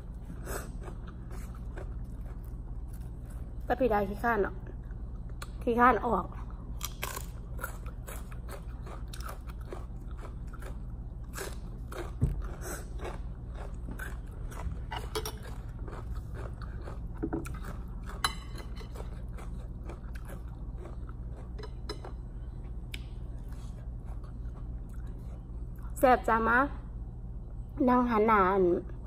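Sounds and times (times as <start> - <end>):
person chewing crunchy salad: 0.0 - 3.6, 6.4 - 25.9
steady low hum: 0.0 - 29.0.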